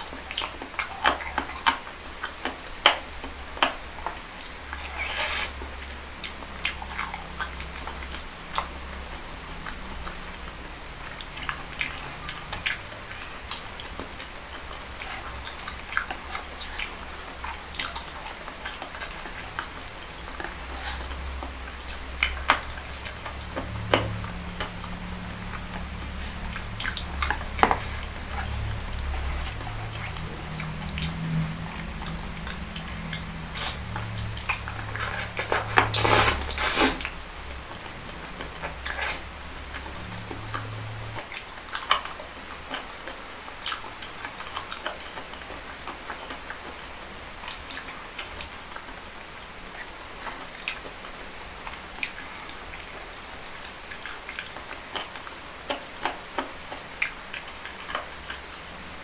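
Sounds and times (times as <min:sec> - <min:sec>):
mouth chewing sounds: 0:00.0 - 0:59.0.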